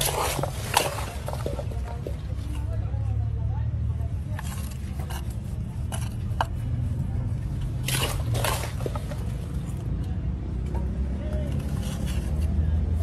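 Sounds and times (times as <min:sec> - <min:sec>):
hands squishing vegetables: 0:00.0 - 0:02.6.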